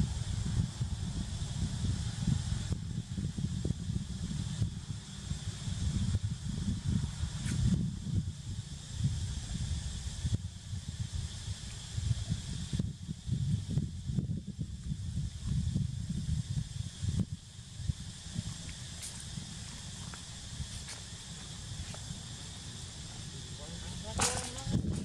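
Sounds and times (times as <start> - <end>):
low wind rumble on microphone: 0.0 - 25.0
steady high hiss: 0.0 - 25.0.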